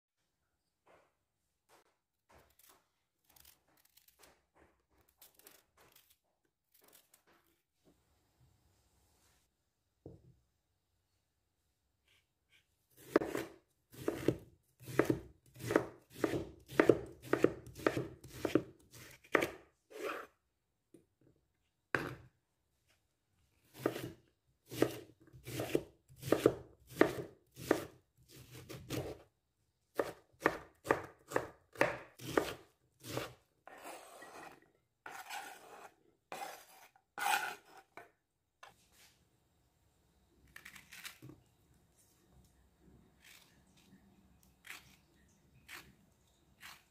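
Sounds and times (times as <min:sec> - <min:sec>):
knife scraping board: 0:12.1 - 0:20.4, 0:23.8 - 0:29.2, 0:31.8 - 0:38.1
knife chopping on wooden board: 0:13.0 - 0:20.3, 0:23.7 - 0:29.2, 0:30.0 - 0:38.1.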